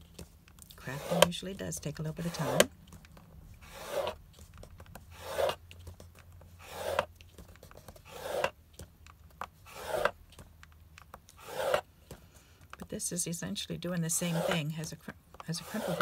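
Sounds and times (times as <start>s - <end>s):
stylus scraping cardstock: 0.8s - 2.8s, 3.6s - 8.6s, 9.4s - 10.4s, 11.3s - 12.2s, 14.1s - 16.0s.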